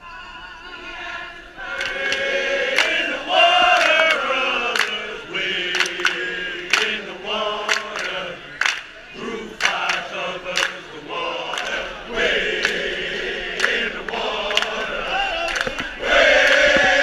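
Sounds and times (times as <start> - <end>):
men chanting together: 1.0 - 8.5, 9.2 - 17.0
handclaps: 1.7 - 5.1, 5.7 - 9.0, 9.6 - 10.8, 11.5 - 11.8, 12.5 - 12.9, 13.5 - 17.0.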